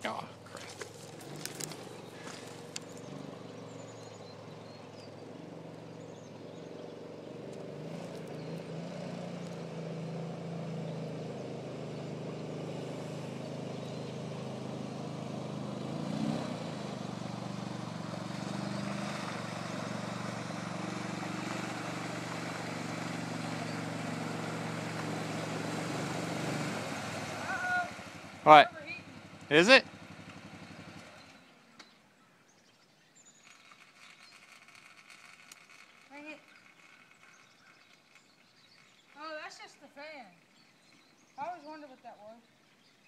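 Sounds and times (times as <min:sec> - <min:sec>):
atv engine running: 0:00.0 - 0:41.7
water splashing off tyres: 0:00.4 - 0:03.2, 0:16.8 - 0:28.6.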